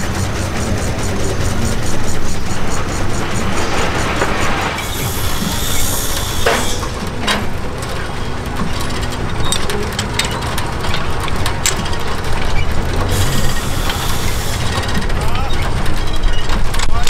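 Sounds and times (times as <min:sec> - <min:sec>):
metal levers clicking and clanking: 0:00.0 - 0:17.0
steady low rumble: 0:00.0 - 0:17.0.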